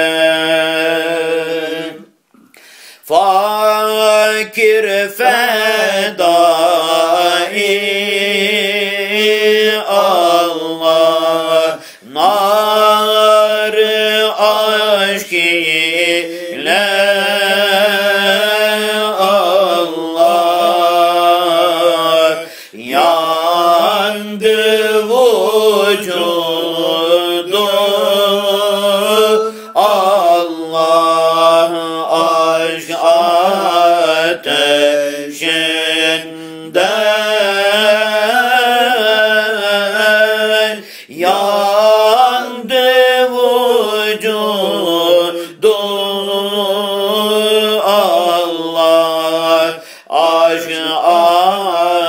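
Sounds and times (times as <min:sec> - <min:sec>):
person chanting a devotional hymn: 0:00.0 - 0:52.0
person breathing: 0:02.3 - 0:03.1, 0:11.8 - 0:12.1, 0:22.4 - 0:22.8, 0:29.5 - 0:29.8, 0:40.8 - 0:41.1, 0:49.8 - 0:50.1.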